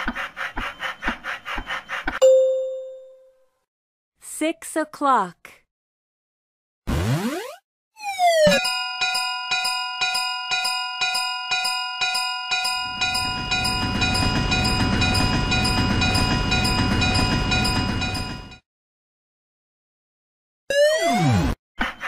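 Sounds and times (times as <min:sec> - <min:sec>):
railway crossing bell ringing: 0:02.2 - 0:03.3, 0:08.5 - 0:18.6.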